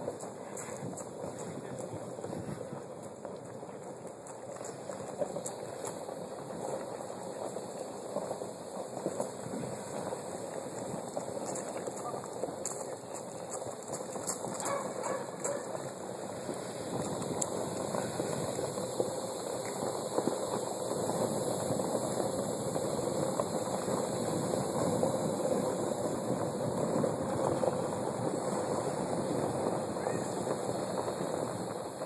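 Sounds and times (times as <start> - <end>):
footsteps on gravel: 0.0 - 7.2, 10.9 - 16.0
bicycle tyres on gravel: 0.0 - 32.0.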